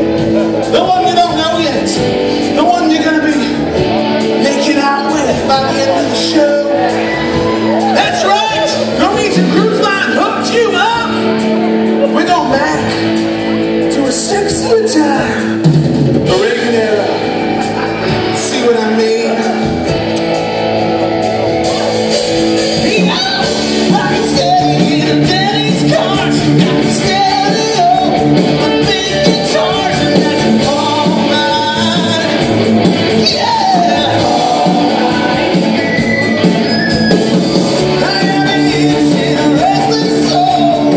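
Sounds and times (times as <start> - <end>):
rock band with electric guitars: 0.0 - 40.9
people singing: 22.9 - 37.2, 37.8 - 40.9.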